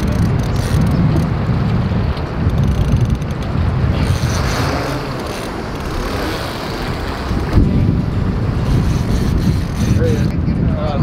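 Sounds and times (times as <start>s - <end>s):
wind buffeting microphone: 0.0s - 11.0s
fast-flowing river rushing: 3.6s - 10.0s.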